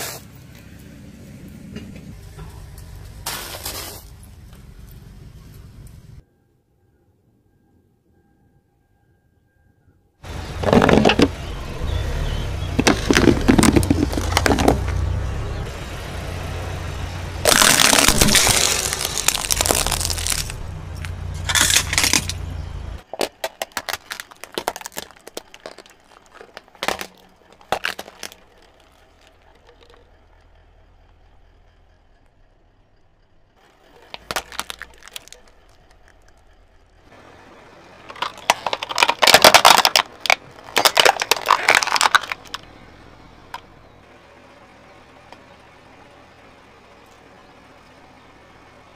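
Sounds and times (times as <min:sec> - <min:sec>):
low tyre rumble: 0:00.0 - 0:06.3, 0:10.2 - 0:48.9
plastic toys cracking: 0:12.8 - 0:15.0, 0:17.4 - 0:22.4, 0:23.0 - 0:30.1, 0:34.0 - 0:36.5, 0:38.1 - 0:42.7
cardboard box crunching: 0:17.4 - 0:20.6, 0:23.2 - 0:28.9, 0:34.1 - 0:35.5, 0:38.2 - 0:42.5
plastic snapping and popping: 0:38.1 - 0:42.6.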